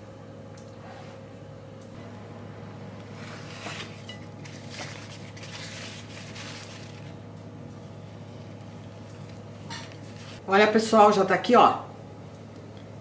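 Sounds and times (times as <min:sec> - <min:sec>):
steady low hum: 0:00.0 - 0:13.0
paper napkin rubbing on bowl: 0:03.2 - 0:07.1.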